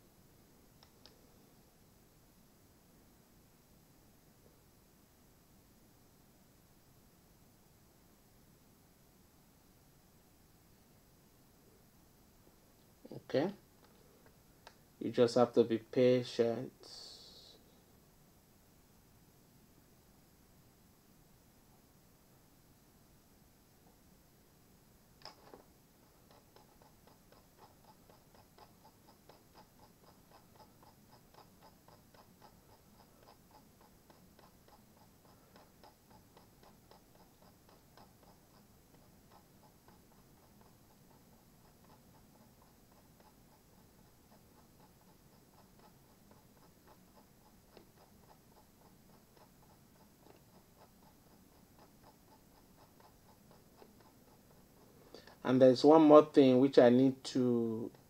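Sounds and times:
mouse scroll wheel clicks: 0:25.2 - 0:55.4.

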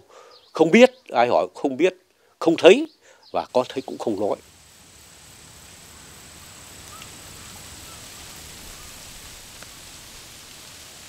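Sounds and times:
film soundtrack hiss: 0:00.0 - 0:11.0
faint clicks: 0:06.8 - 0:07.2.

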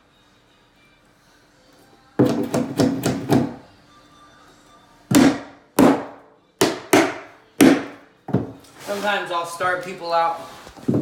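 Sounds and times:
hammer striking nails into wood: 0:02.2 - 0:03.6, 0:05.1 - 0:08.5.

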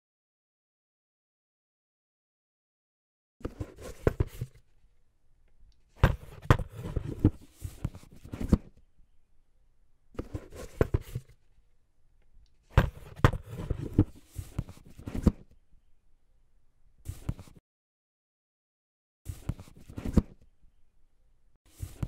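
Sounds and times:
cardboard box handled on table: 0:03.4 - 0:04.6, 0:06.0 - 0:08.8, 0:10.2 - 0:11.4, 0:12.7 - 0:15.5, 0:21.7 - 0:22.0.

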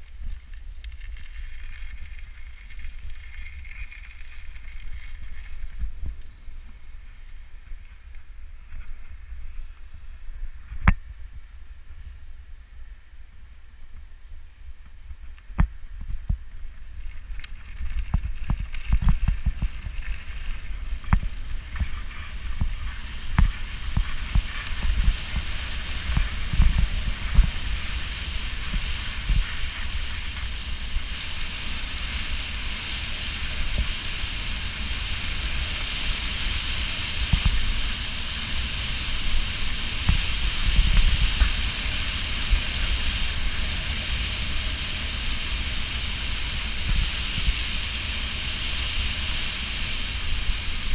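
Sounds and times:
wind buffeting microphone: 0:15.0 - 0:50.9.

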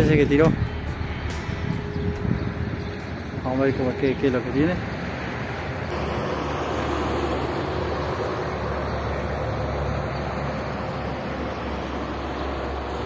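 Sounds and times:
motor drone: 0:05.9 - 0:13.0.

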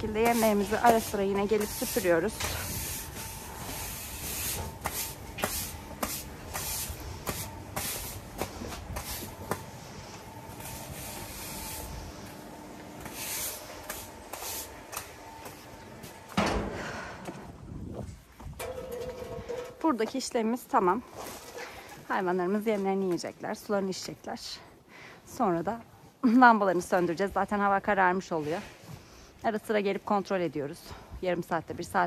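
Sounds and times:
broom sweeping feed on floor: 0:00.0 - 0:12.4, 0:13.0 - 0:15.1.

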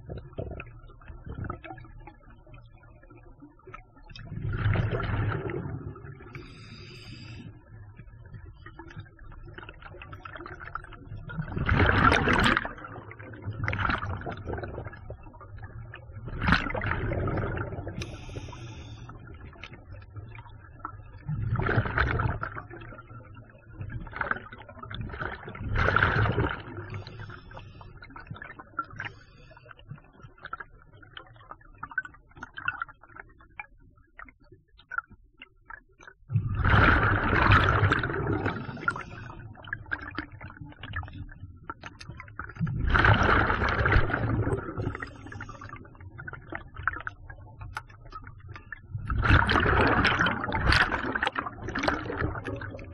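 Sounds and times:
quiet bubbling and crackling: 0:00.0 - 0:52.9
exhaled bubbles rushing: 0:03.6 - 0:07.2, 0:07.8 - 0:27.4, 0:36.3 - 0:52.9.

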